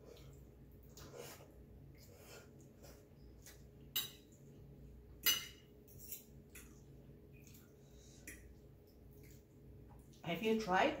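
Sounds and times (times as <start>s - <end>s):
cutlery clinking on ceramic plate: 5.2s - 6.3s.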